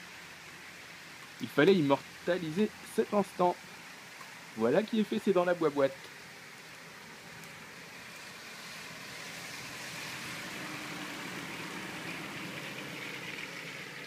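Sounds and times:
tyres hissing on wet asphalt: 0.0s - 14.0s
van driving past: 7.9s - 14.0s.

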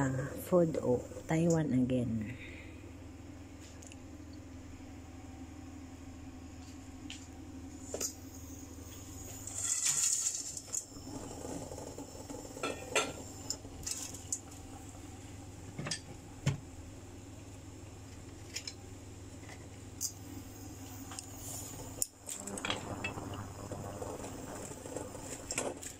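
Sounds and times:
low steady hum: 0.0s - 25.9s
rustling scrape: 9.4s - 10.6s.

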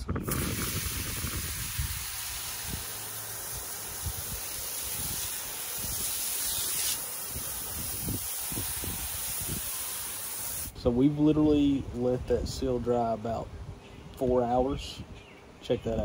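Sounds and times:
water spray hissing on concrete: 0.2s - 10.8s.

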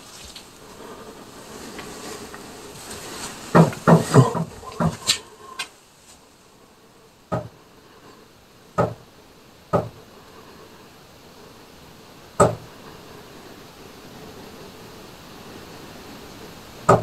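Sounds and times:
sharp knocking: 3.5s - 5.2s, 8.8s - 9.0s, 9.8s - 10.0s, 12.4s - 12.6s.

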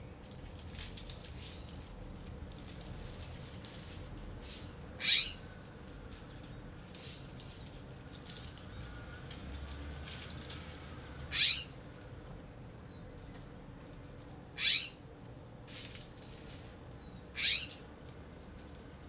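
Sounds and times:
raccoon screeching: 5.0s - 5.4s, 11.3s - 11.8s, 14.6s - 15.0s, 17.4s - 17.8s.

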